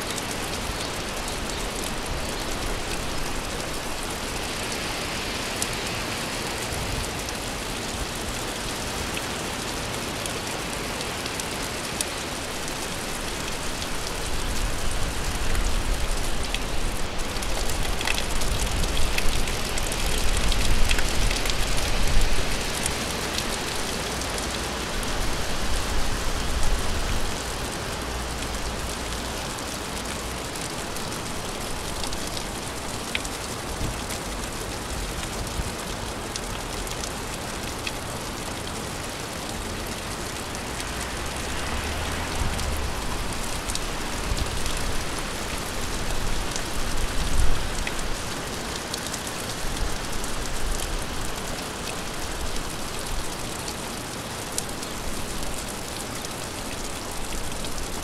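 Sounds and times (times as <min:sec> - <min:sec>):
gentle rain falling: 0:00.0 - 0:58.0
water drips: 0:27.9 - 0:58.0.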